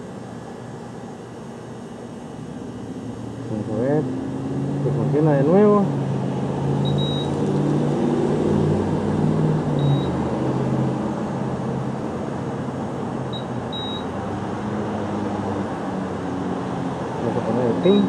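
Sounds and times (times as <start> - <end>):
steady low hum: 0.0 - 18.0
card reader beeping: 6.8 - 7.6, 9.8 - 10.2, 13.3 - 14.2.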